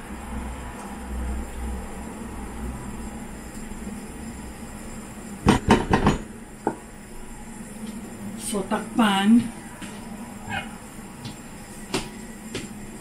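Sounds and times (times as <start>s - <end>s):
food simmering in a wok: 0.0s - 8.4s
low hum and hiss: 0.0s - 13.0s
sharp knocks against pan: 5.5s - 6.2s.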